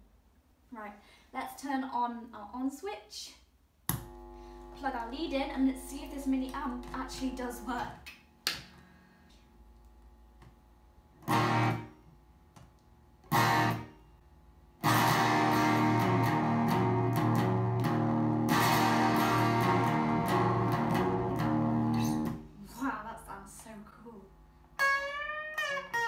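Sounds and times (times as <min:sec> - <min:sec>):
electric guitar through small amp: 0:11.2 - 0:11.9, 0:13.2 - 0:13.9, 0:14.8 - 0:22.4, 0:24.8 - 0:26.0.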